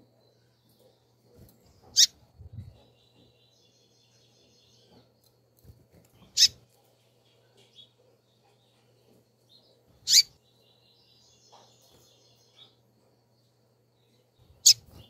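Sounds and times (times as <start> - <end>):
faint high bird twittering: 0.0 - 6.6, 7.2 - 12.8, 14.0 - 15.0
bird peeping call notes: 10.1 - 10.3.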